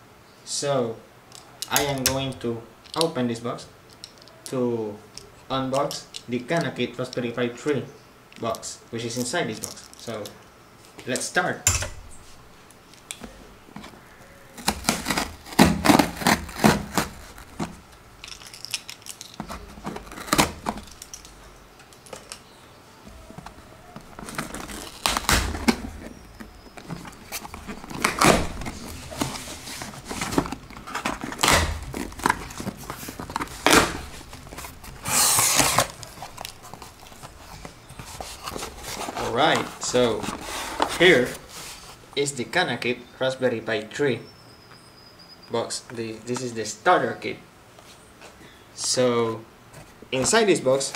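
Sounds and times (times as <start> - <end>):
packing tape tearing: 12.9 - 22.5, 23.1 - 41.9
cardboard flaps scraping and rustling: 13.2 - 17.8, 19.4 - 21.1, 23.1 - 42.1.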